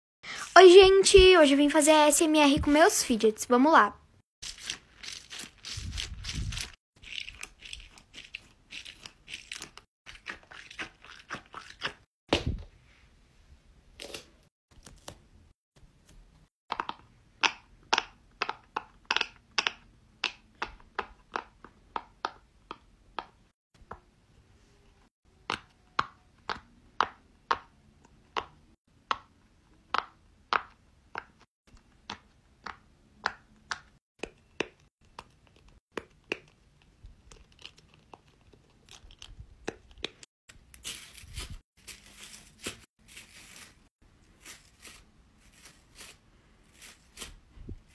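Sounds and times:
pop-it toy popping: 0:16.7 - 0:23.4.

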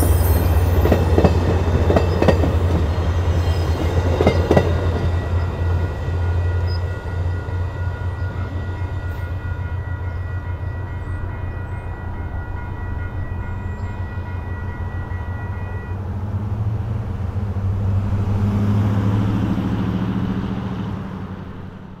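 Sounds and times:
thin high ringing tones: 0:00.0 - 0:16.0
train rumble: 0:00.0 - 0:22.0.

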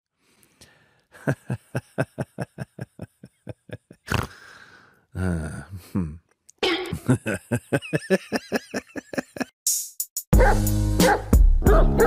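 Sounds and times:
low voice-like sound: 0:05.2 - 0:06.3.

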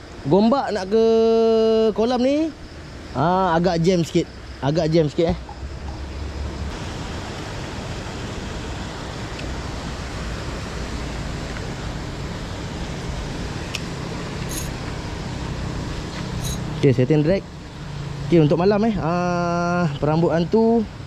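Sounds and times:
rushing hiss: 0:06.6 - 0:16.8.

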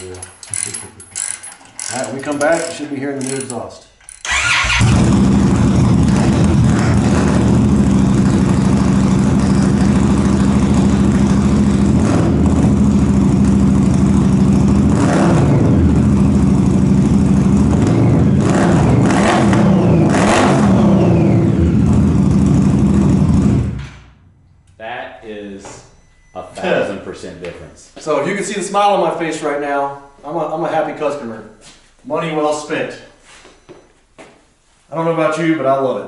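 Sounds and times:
motorcycle engine idling lumpy: 0:04.2 - 0:15.0.

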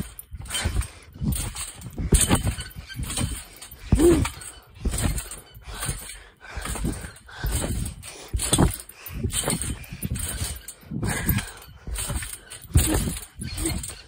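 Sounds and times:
trampoline bounce thumps: 0:00.0 - 0:14.0
heavy panting breaths: 0:03.5 - 0:14.0.

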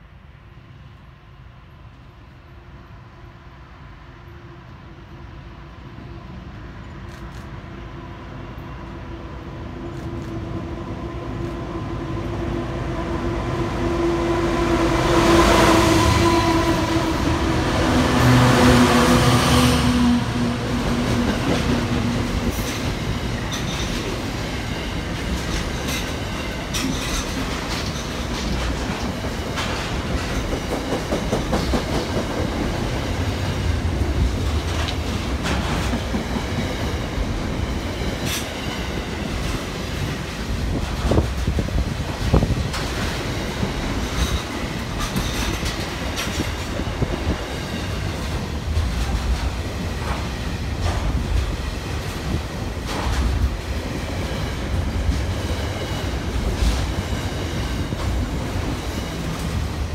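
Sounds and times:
diesel locomotive engine passing: 0:00.4 - 0:59.9
train wheels clicking over rail joints: 0:20.8 - 0:59.9.

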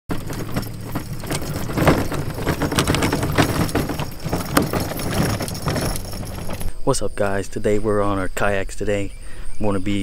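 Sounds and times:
gear rattling and clattering: 0:00.0 - 0:06.7
kayak dragged across grass: 0:00.1 - 0:06.7.

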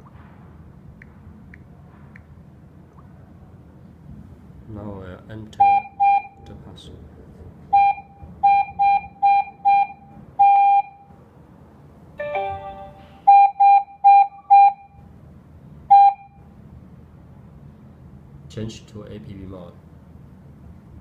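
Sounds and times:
multi-tone sound: 0:12.2 - 0:14.8.

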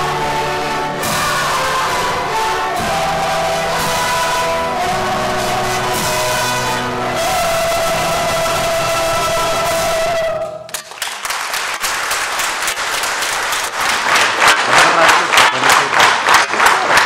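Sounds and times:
choir and strings chord: 0:00.0 - 0:10.6
audience applause: 0:10.7 - 0:17.0.

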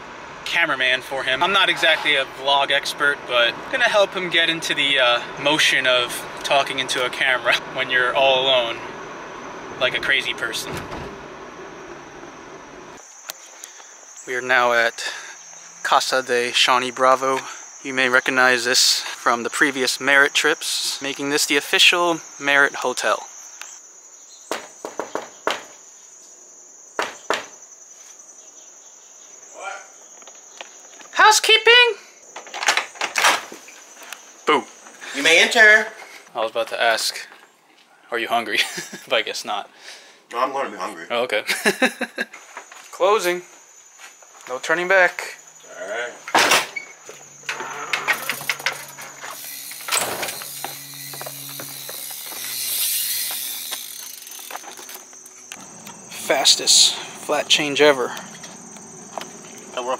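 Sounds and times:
steady high-pitched whine: 0:00.0 - 0:13.4, 0:46.3 - 0:59.9
bike hub ratcheting clicks: 0:49.3 - 0:55.6.

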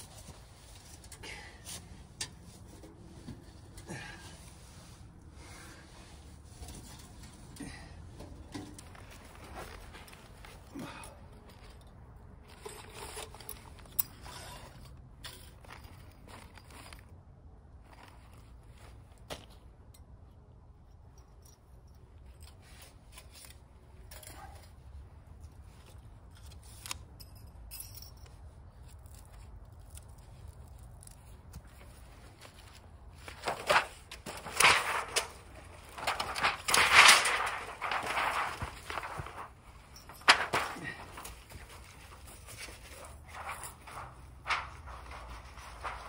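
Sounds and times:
sheet metal rattling and crinkling: 0:06.2 - 0:17.1, 0:29.8 - 0:46.0.

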